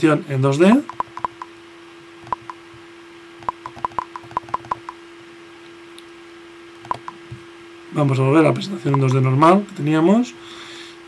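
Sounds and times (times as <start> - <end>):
faint steady hum: 0.0 - 11.0
computer mouse clicking: 0.9 - 1.5, 2.2 - 2.6, 3.4 - 5.0, 6.9 - 7.2.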